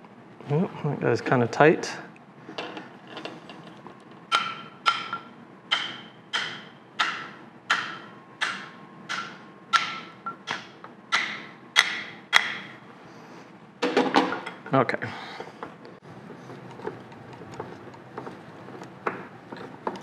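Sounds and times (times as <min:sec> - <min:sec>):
mallet tapping on metal: 0:04.3 - 0:12.7.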